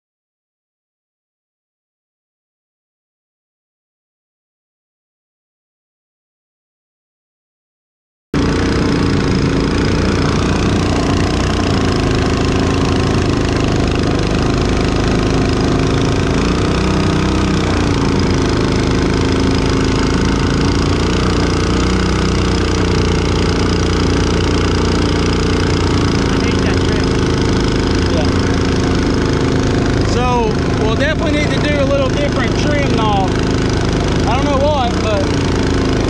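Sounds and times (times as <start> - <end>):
boat motor running under load: 8.4 - 36.0.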